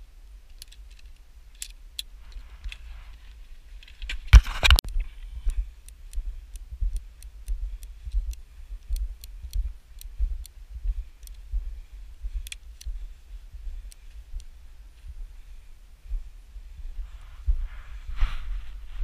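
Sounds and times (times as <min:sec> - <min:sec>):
light clicks from carried gear: 0:00.2 - 0:04.2, 0:04.9 - 0:11.5, 0:12.4 - 0:13.0, 0:13.8 - 0:15.2.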